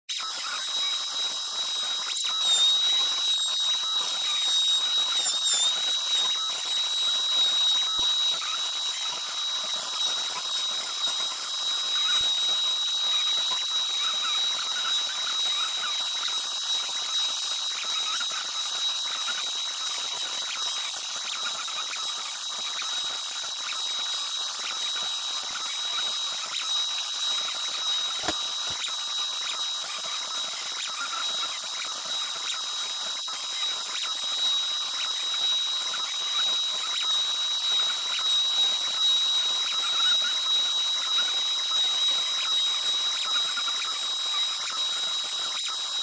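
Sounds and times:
router spindle whine: 0:00.1 - 0:46.0
bit hissing cutting wood: 0:27.9 - 0:28.9.

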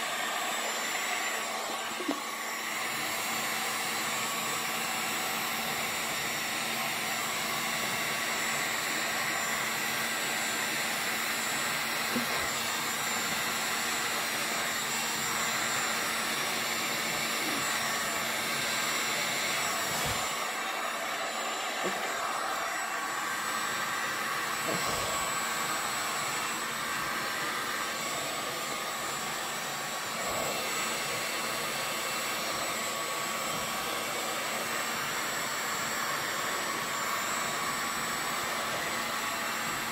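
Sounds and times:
hot-air blower rushing: 0:00.0 - 0:39.9.

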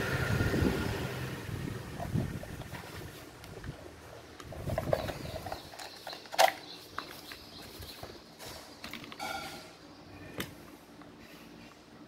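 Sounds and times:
plastic parts rustling and clicking: 0:04.4 - 0:09.6.

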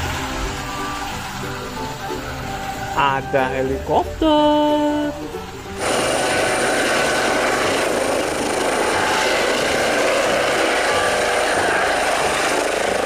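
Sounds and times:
helicopter hovering: 0:05.0 - 0:13.0.

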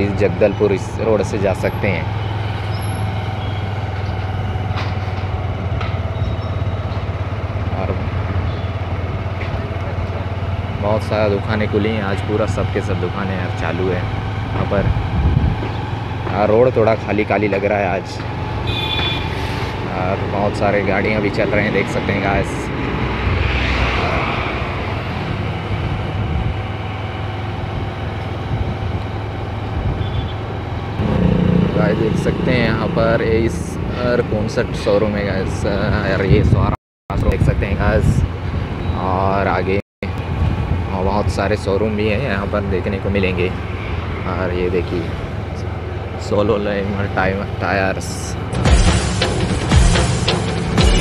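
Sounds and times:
road and air noise: 0:00.0 - 0:50.9
motorcycle engine running: 0:30.9 - 0:34.6.

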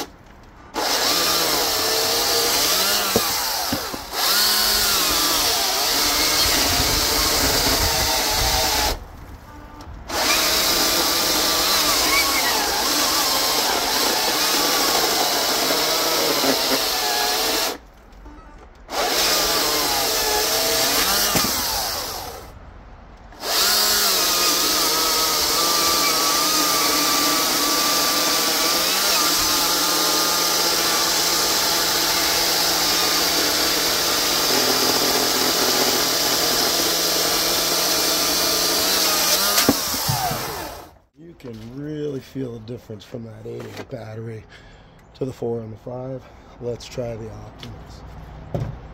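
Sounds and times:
battery chainsaw cutting log: 0:00.7 - 0:09.0, 0:10.1 - 0:17.8, 0:18.9 - 0:22.5, 0:23.4 - 0:41.0.

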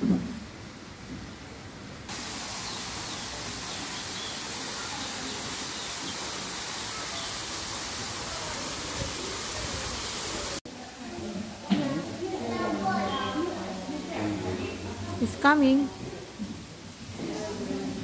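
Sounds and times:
steady rushing hiss: 0:00.8 - 0:10.6.

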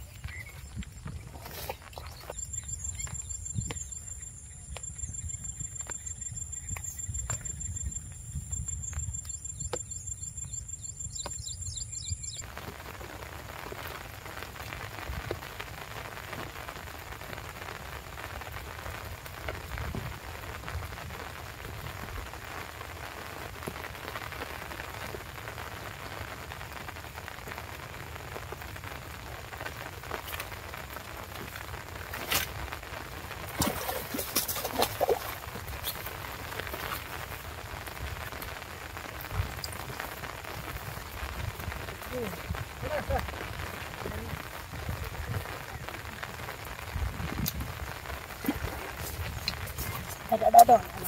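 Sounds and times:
rain pattering on water and plants: 0:00.0 - 0:11.4, 0:12.4 - 0:51.0
fish splashing at surface: 0:33.5 - 0:36.0.

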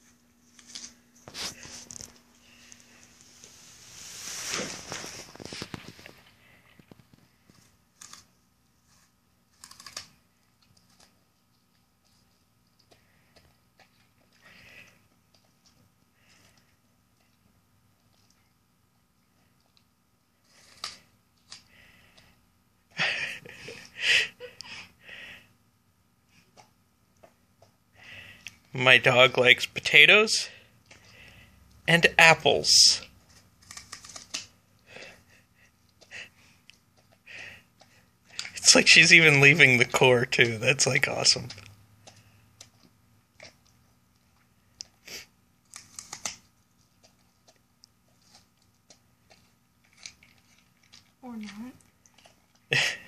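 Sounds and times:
dog chewing and breathing: 0:00.0 - 0:22.5, 0:33.1 - 0:39.8, 0:40.9 - 0:53.0.

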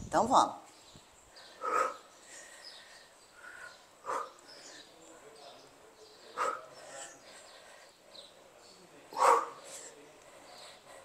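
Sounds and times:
dog barking: 0:01.6 - 0:02.0, 0:04.0 - 0:04.4, 0:06.4 - 0:06.7, 0:09.2 - 0:09.6.

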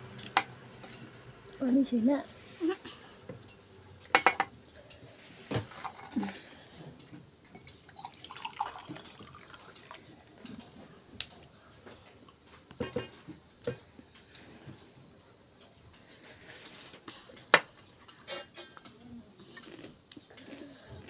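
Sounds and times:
chewing and slurping noodles: 0:19.5 - 0:21.0.

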